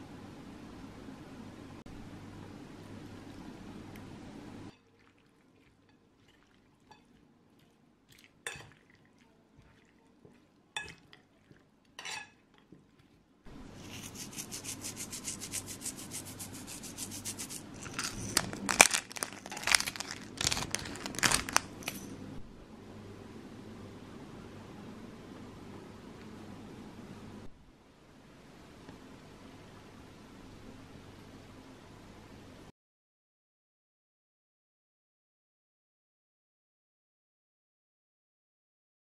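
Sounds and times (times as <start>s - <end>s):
fork tossing salad in bowl: 4.7s - 22.1s
fork clinking against bowl: 10.8s - 11.2s, 12.0s - 12.6s.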